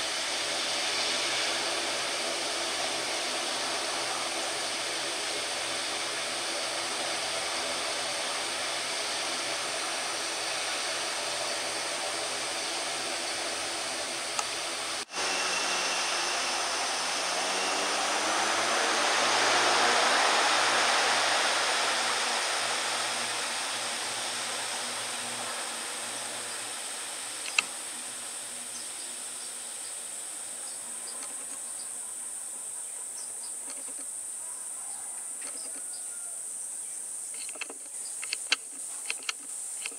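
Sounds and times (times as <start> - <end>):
turboprop engines droning: 0.0 - 39.9.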